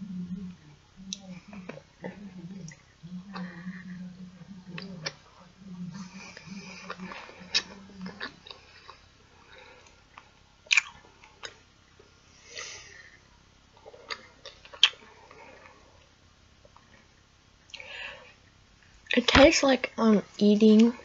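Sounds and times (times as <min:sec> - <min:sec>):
person humming: 0:00.0 - 0:08.4
sticky chewing: 0:01.0 - 0:09.0, 0:10.7 - 0:11.6
mouth clicks and lip smacks: 0:10.7 - 0:11.6, 0:14.0 - 0:15.0.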